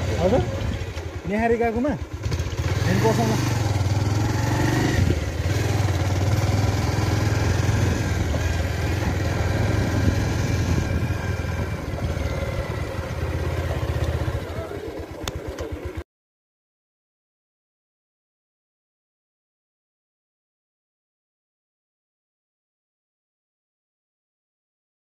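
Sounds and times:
motorcycle engine running: 0:00.0 - 0:16.0
road and wind noise: 0:00.0 - 0:16.0.

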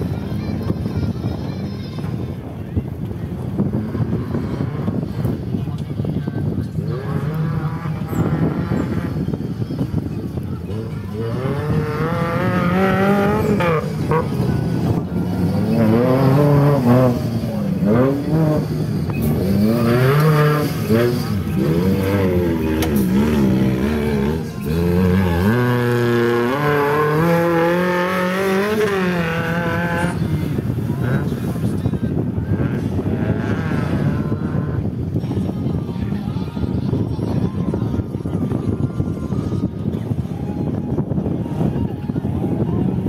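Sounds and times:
off-road vehicle engine revving: 0:03.5 - 0:05.6, 0:06.5 - 0:36.2.

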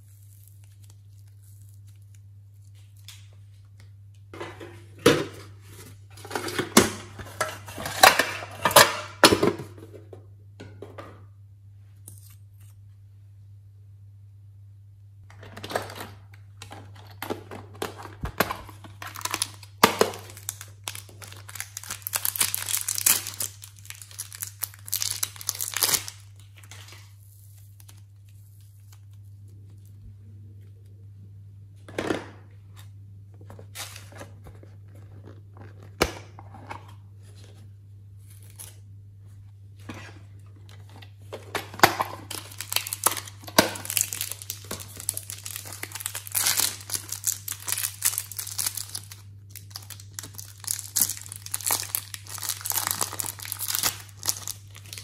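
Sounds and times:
plastic wrappers crinkling and tearing: 0:00.0 - 0:03.8, 0:17.8 - 0:29.9, 0:40.7 - 0:55.0.

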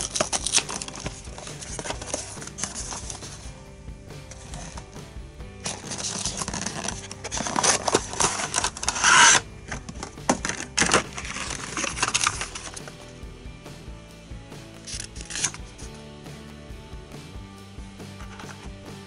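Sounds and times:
packaging rustling and crinkling: 0:00.0 - 0:03.4, 0:05.6 - 0:12.8
soft background music: 0:00.0 - 0:19.0.

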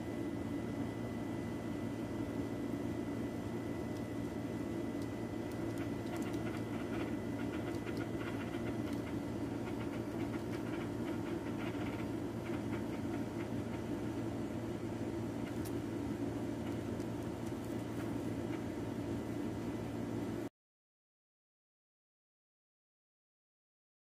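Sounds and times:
low mechanical hum: 0:00.0 - 0:20.5
wings fluttering: 0:04.7 - 0:13.9.

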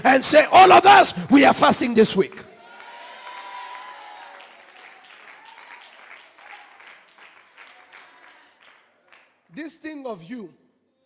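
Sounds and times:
congregation applauding: 0:02.6 - 0:10.0.

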